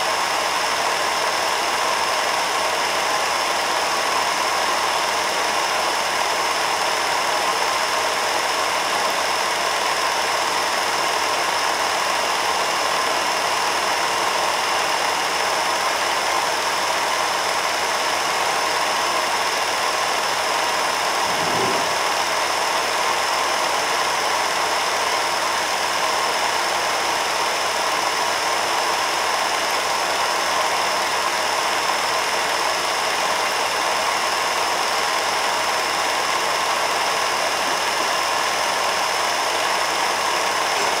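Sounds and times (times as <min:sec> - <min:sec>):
film projector whirring: 0:00.1 - 0:41.0
low thump: 0:21.1 - 0:22.4.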